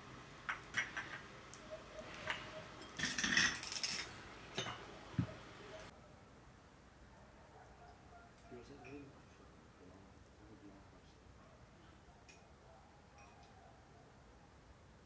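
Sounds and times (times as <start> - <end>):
tea glasses and spoons clinking: 0.5 - 1.3, 2.2 - 5.3.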